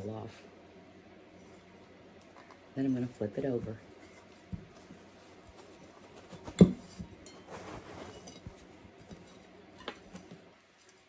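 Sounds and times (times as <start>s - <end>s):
scraping and rustling: 3.5s - 11.0s.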